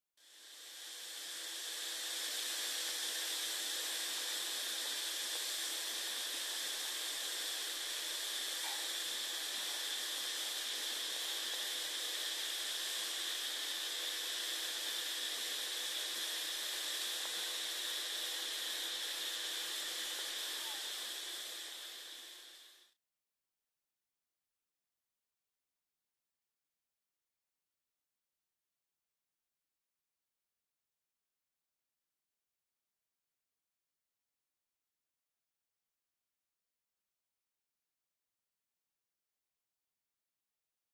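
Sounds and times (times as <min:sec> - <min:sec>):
steady hiss: 0:00.2 - 0:23.0.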